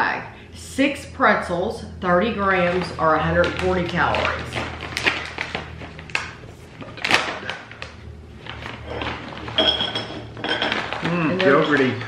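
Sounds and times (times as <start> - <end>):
bag crinkling: 3.4 - 9.9
snack bag ripping open: 7.0 - 9.5
pretzels clattering onto plate: 9.0 - 12.0.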